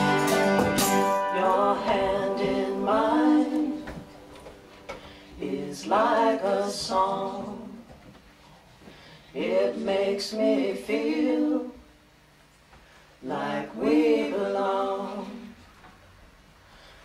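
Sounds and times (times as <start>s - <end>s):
voices singing a cappella: 1.2s - 4.3s, 5.3s - 8.0s, 9.2s - 12.1s, 13.2s - 15.8s.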